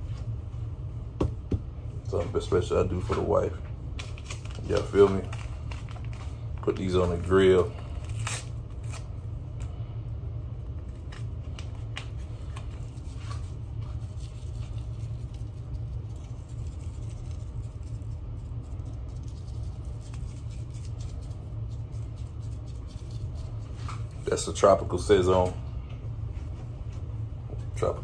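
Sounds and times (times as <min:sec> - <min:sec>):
low room hum: 0:00.0 - 0:28.0
seasoning packet shaking: 0:12.9 - 0:23.7.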